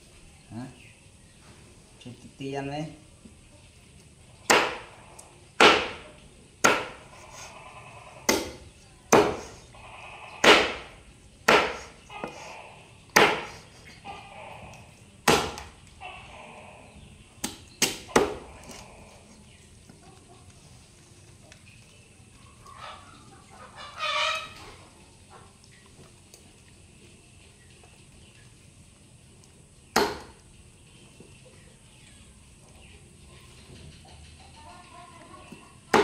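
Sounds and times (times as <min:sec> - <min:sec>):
cleaver chopping on wooden block: 0:04.5 - 0:04.9, 0:05.6 - 0:06.0, 0:06.6 - 0:07.0, 0:08.3 - 0:09.5, 0:10.4 - 0:12.4, 0:13.1 - 0:13.6, 0:15.2 - 0:15.7, 0:17.4 - 0:18.8, 0:30.0 - 0:30.4.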